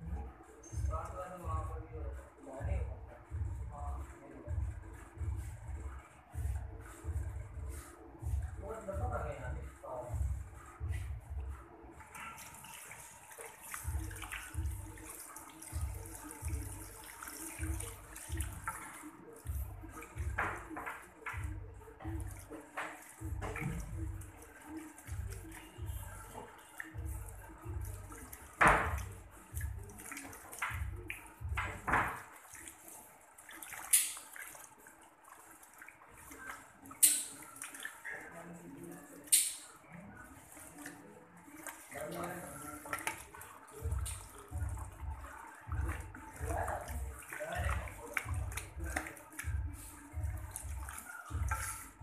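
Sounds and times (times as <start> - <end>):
soft low thuds: 0.0 - 11.7, 43.8 - 52.0
hand working through wet hair: 12.0 - 39.3, 39.9 - 52.0
water running into a basin: 12.0 - 52.0.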